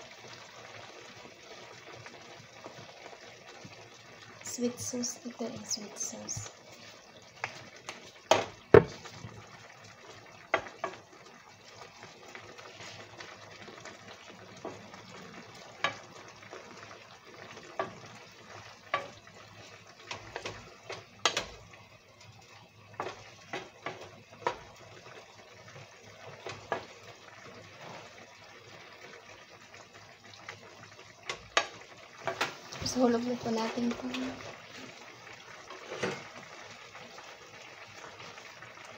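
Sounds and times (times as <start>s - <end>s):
sauce simmering hiss: 0.0s - 38.9s
wooden spatula scraping a pan: 12.3s - 13.4s, 26.2s - 28.3s, 35.7s - 36.5s.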